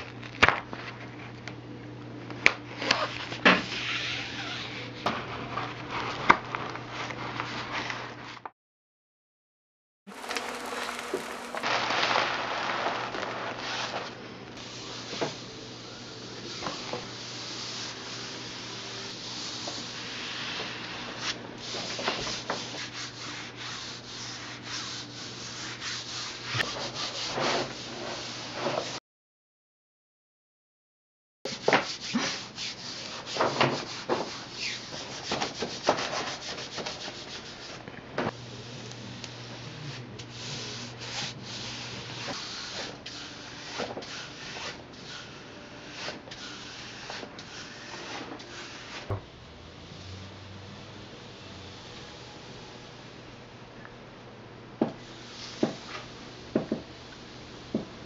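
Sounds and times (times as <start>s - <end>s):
wallpaper peeling from wall: 2.6s - 8.5s, 10.1s - 15.5s, 16.5s - 29.0s, 31.5s - 37.8s, 40.3s - 49.2s.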